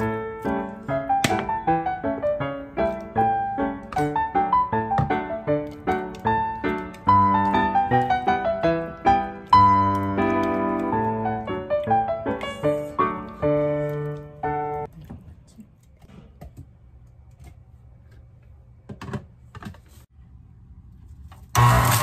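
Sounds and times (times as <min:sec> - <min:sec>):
background piano music: 0:00.0 - 0:14.9
juicer motor whine: 0:21.5 - 0:22.0.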